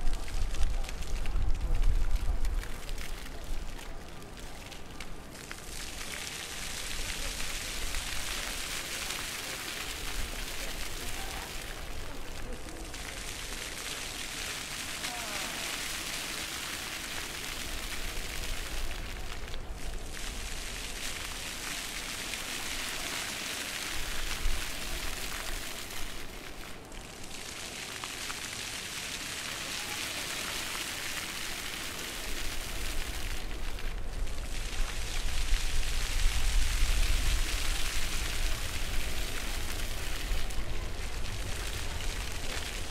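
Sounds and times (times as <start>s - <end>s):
fountain jets splashing on paving: 0.0s - 42.9s.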